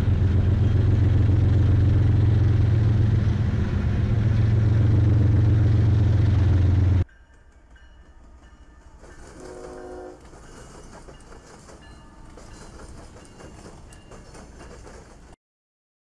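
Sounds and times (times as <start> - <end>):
freight train rumbling past: 0.0 - 15.4
wheels clicking over rails: 7.3 - 15.4
train horn note: 9.2 - 10.3.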